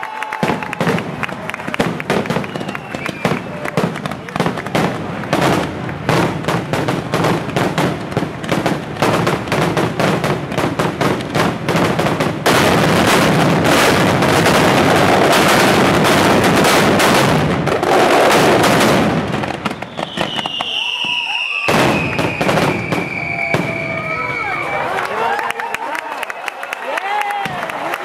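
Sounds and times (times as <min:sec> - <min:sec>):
firecrackers banging: 0:00.3 - 0:25.0.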